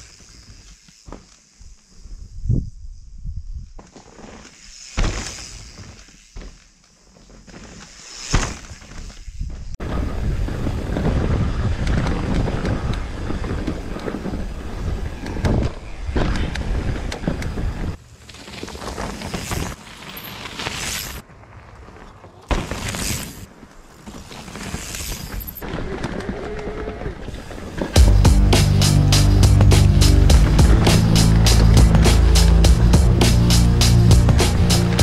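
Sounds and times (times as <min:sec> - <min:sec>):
wind on microphone: 0:02.1 - 0:03.8, 0:09.2 - 0:18.0
bike rattling over dirt trail: 0:03.8 - 0:28.2.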